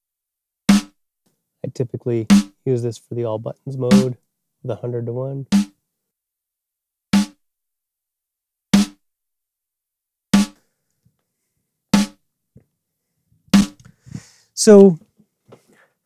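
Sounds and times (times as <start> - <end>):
compressed snare drum hits: 0.7 - 1.0, 2.3 - 2.6, 3.9 - 4.2, 5.5 - 5.7, 7.2 - 7.4, 8.8 - 9.0, 10.4 - 10.6, 12.0 - 12.2, 13.6 - 13.8.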